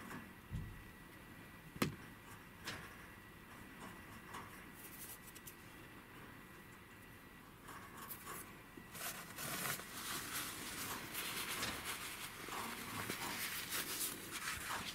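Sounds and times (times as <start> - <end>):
fur rustling against clothing: 8.9 - 14.9.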